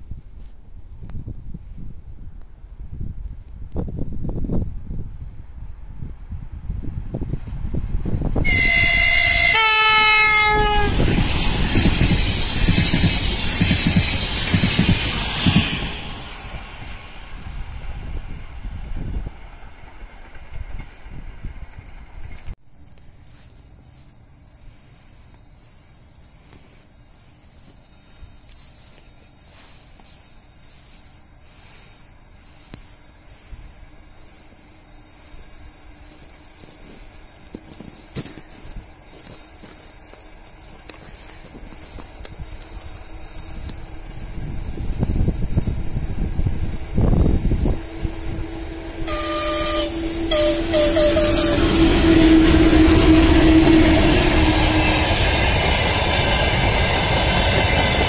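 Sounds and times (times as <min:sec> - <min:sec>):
faint outdoor hiss: 0:00.0 - 0:51.8
train wheel rumble and hum: 0:00.0 - 0:58.0
locomotive horn blasts: 0:08.4 - 0:11.1, 0:47.6 - 0:55.2.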